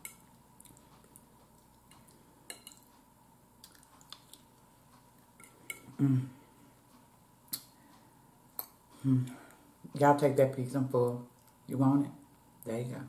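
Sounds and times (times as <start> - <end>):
person humming: 6.0 - 6.4, 9.0 - 9.5.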